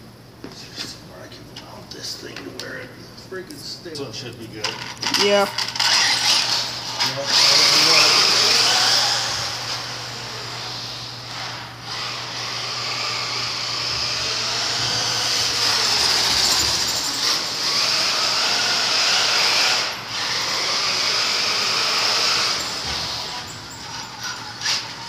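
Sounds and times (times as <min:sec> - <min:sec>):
electric rc car motor whining: 0:05.1 - 0:25.0.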